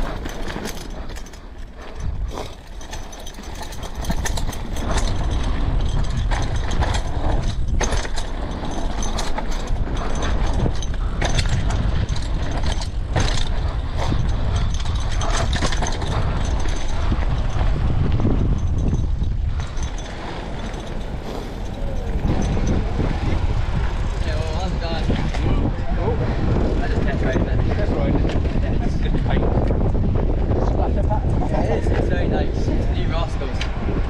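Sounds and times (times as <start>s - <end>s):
bike chain and frame rattling: 0.0s - 34.0s.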